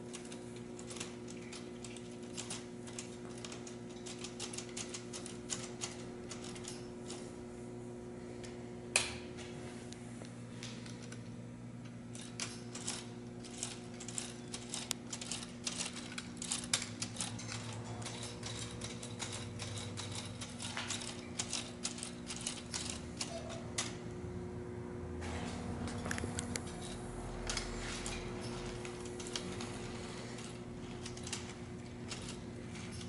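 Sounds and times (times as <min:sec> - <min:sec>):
plastic gears clicking and rattling: 0:00.0 - 0:07.2, 0:12.1 - 0:24.0, 0:26.0 - 0:33.0.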